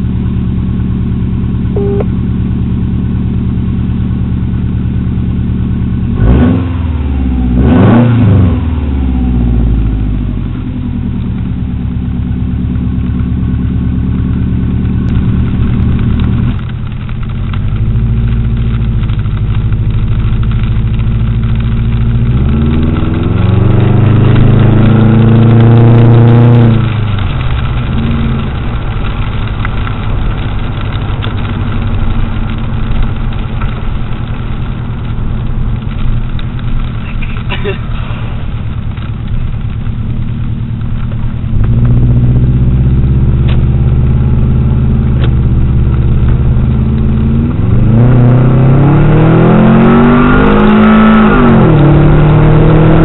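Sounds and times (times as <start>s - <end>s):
car engine accelerating: 0.0s - 53.0s.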